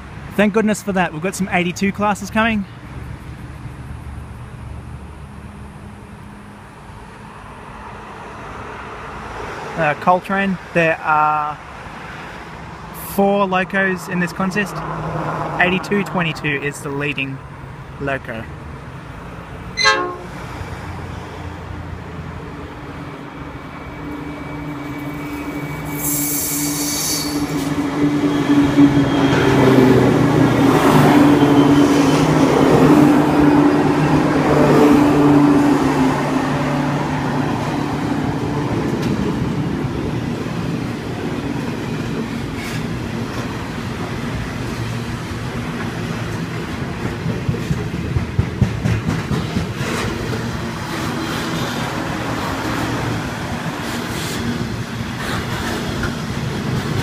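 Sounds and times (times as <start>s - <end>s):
diesel locomotive engines droning: 11.4s - 57.0s
train wagons rumbling and clattering: 18.8s - 57.0s
brief shrill sound: 19.8s - 20.5s.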